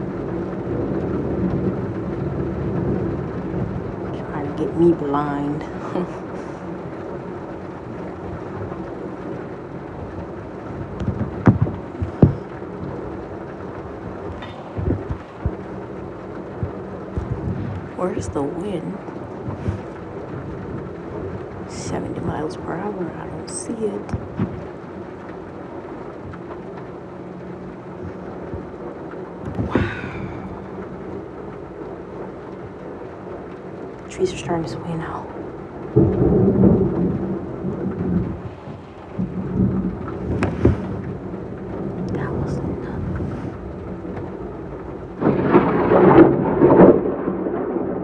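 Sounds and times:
steady rain: 0:00.0 - 0:48.0
thunder rumble: 0:00.0 - 0:48.0
sharp thunder cracks: 0:29.4 - 0:31.0, 0:35.8 - 0:48.0.

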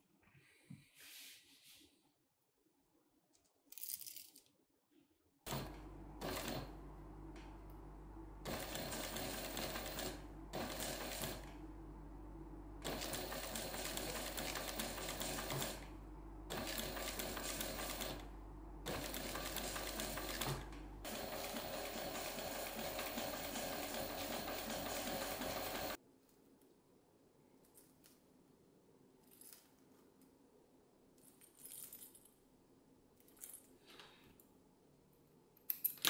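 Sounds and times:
sewing machine stitching: 0:05.5 - 0:06.8, 0:08.4 - 0:11.6, 0:12.8 - 0:15.9, 0:16.5 - 0:26.0
steady low hum: 0:11.5 - 0:13.4, 0:15.8 - 0:16.6, 0:18.2 - 0:19.4.

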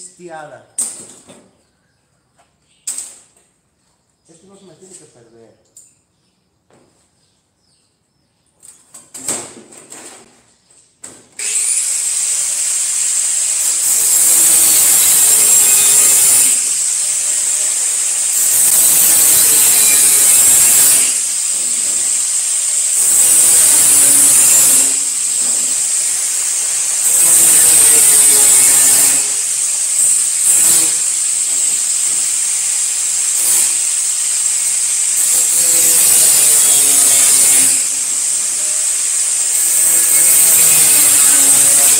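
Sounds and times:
angle grinder cutting sheet steel: 0:11.4 - 0:41.9.

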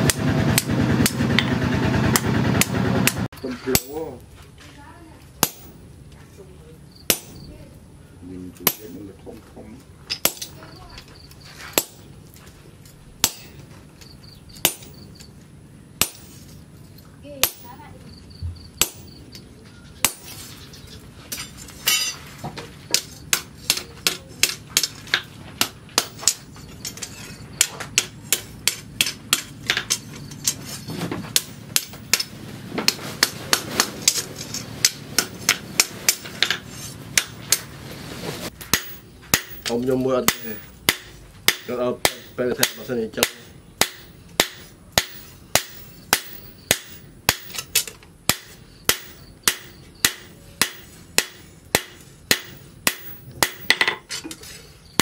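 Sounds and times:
hammer striking metal on anvil: 0:02.1 - 0:04.1, 0:05.4 - 0:05.8, 0:07.1 - 0:07.5, 0:08.6 - 0:09.0, 0:10.1 - 0:10.6, 0:13.2 - 0:13.6, 0:16.0 - 0:16.5, 0:17.4 - 0:17.8, 0:18.8 - 0:19.2, 0:21.3 - 0:22.2, 0:22.9 - 0:30.6, 0:31.3 - 0:37.7, 0:38.6 - 0:54.1.

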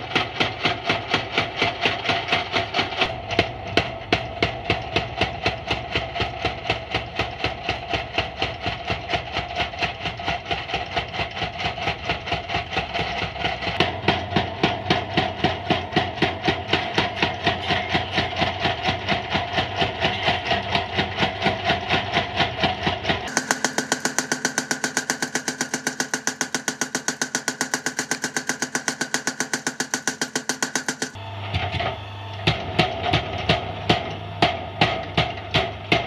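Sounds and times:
power hammer pounding steel: 0:00.0 - 0:31.8, 0:32.4 - 0:36.0.

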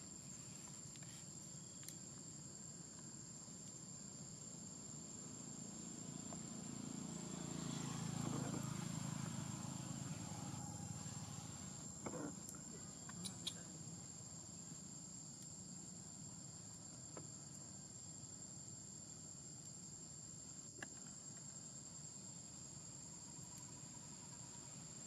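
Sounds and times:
faint clicks: 0:01.8 - 0:02.0
high-pitched insect drone: 0:03.8 - 0:15.2, 0:20.9 - 0:25.0.

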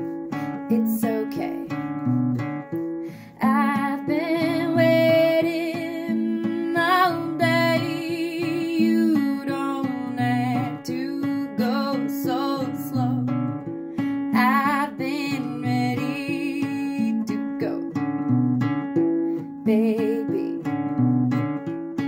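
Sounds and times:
acoustic guitar chords: 0:00.0 - 0:22.0
woman singing with vibrato: 0:00.7 - 0:01.8, 0:03.3 - 0:13.4, 0:14.3 - 0:18.0, 0:19.6 - 0:20.8.

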